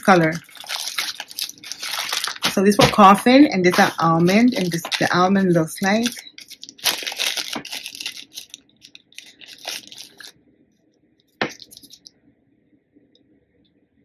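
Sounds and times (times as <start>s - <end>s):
plastic bag crinkling: 0.0s - 10.4s, 11.4s - 12.1s.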